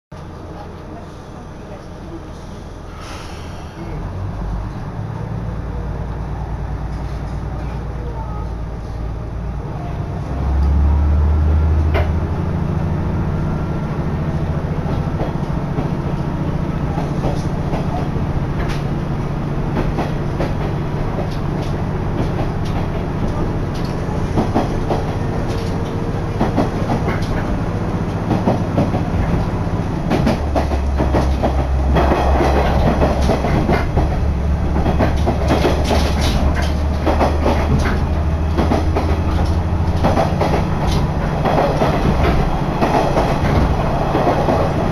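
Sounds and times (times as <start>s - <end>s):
diesel engine drone: 0.2s - 44.9s
wheel and rail noise: 0.2s - 44.9s
wheels clicking over rail joints: 19.7s - 44.9s.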